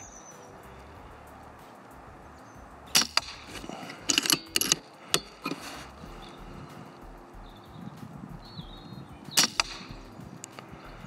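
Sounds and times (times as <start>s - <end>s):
air rifle shots: 2.9s - 5.8s, 9.2s - 10.8s
rifle mechanism clicks: 3.0s - 6.0s.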